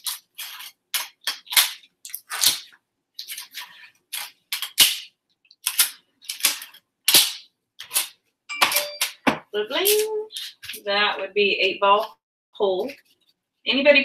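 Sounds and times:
object crackling and snapping: 0:00.0 - 0:08.2.

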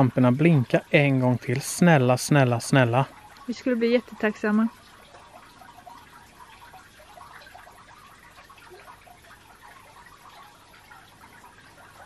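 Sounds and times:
faint patter of small ticks: 0:03.0 - 0:12.0.

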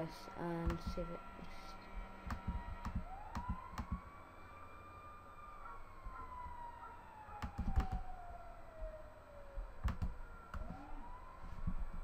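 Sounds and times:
faint wailing tone: 0:00.0 - 0:12.0
computer clicks: 0:07.4 - 0:08.0.

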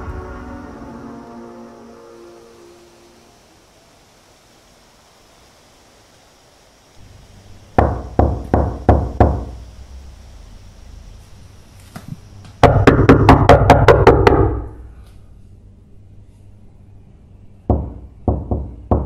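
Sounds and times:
knocking on wooden door: 0:07.8 - 0:09.6, 0:12.6 - 0:14.6, 0:17.7 - 0:19.0.

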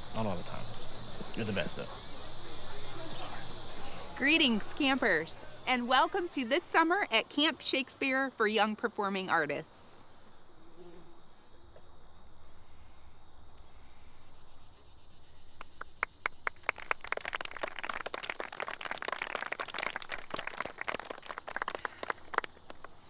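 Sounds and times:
faint outdoor background: 0:00.0 - 0:23.0
people clapping: 0:15.6 - 0:23.0.

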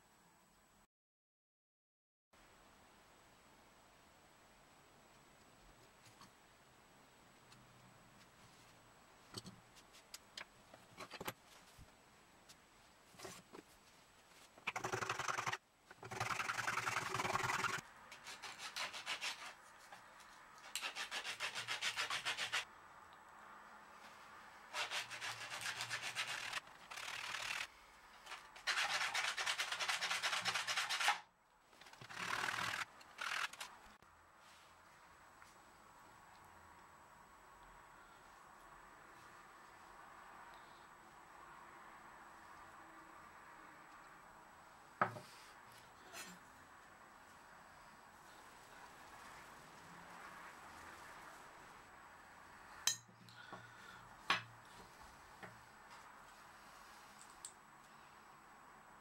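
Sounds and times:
wood rasping on sandpaper: 0:14.8 - 0:19.6, 0:20.6 - 0:22.7, 0:24.7 - 0:27.7, 0:28.3 - 0:31.2.

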